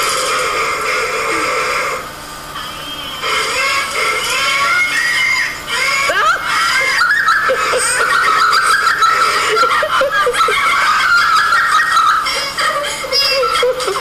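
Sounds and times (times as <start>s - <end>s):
high-pitched giggling laughter: 5.8s - 14.0s.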